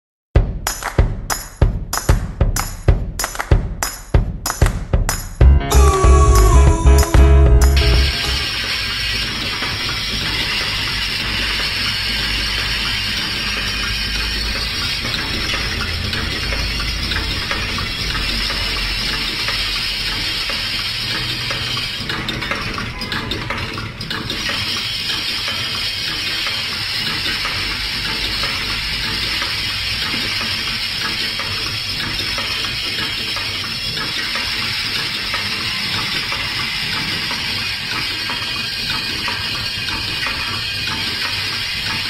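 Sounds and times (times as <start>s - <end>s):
machine hissing and rattling: 8.4s - 42.0s
rapid mechanical clicking: 8.6s - 42.0s.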